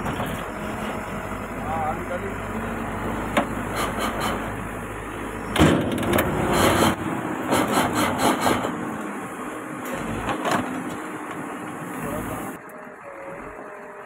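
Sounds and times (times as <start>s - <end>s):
diesel engine running: 0.0s - 14.0s
loud knocks and clatter: 3.4s - 4.5s, 5.5s - 8.8s.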